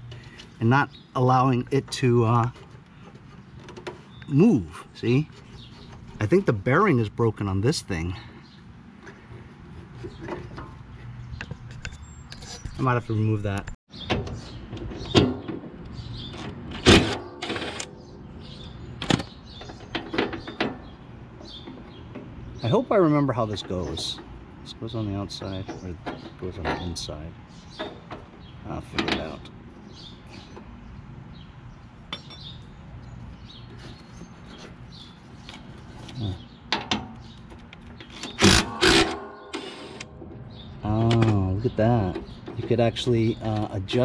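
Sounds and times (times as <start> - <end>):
impact driver hammering: 38.3 - 40.3.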